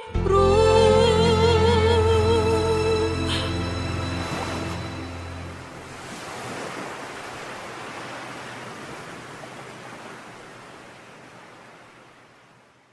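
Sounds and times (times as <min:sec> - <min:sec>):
sea waves washing on beach: 0:03.5 - 0:12.9.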